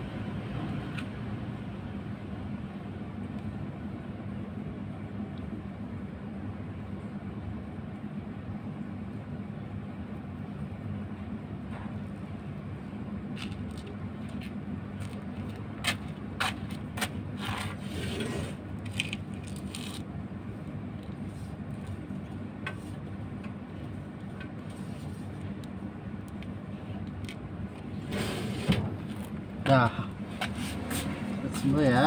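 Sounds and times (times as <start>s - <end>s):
cloth bandage scraping and rubbing: 17.4s - 20.1s.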